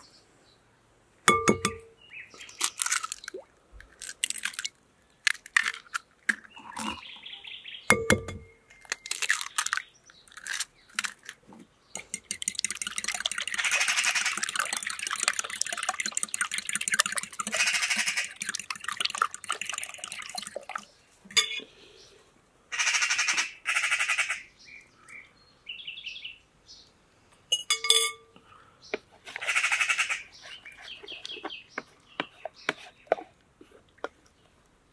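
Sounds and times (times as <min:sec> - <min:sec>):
fork clicking against glass: 0:12.0 - 0:15.4
fork whisking eggs in glass bowl: 0:12.0 - 0:20.8.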